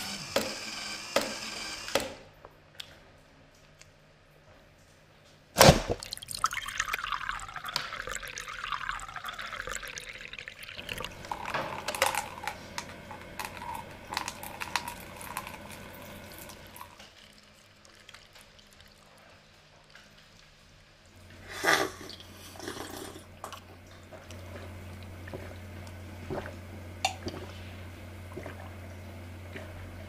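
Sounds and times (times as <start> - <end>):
liquid pouring into cup: 6.0 - 19.4.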